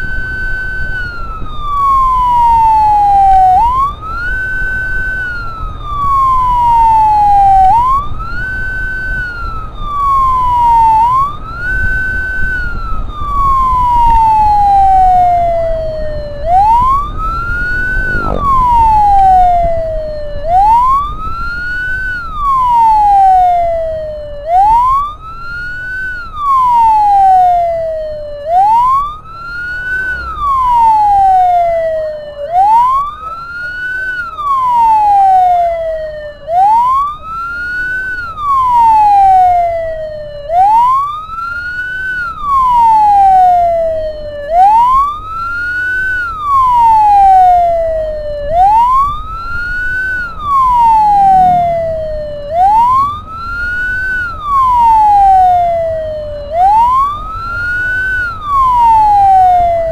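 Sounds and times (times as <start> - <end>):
ambulance siren wailing: 0.0 - 59.9
low rumble: 16.0 - 20.9, 50.9 - 52.7.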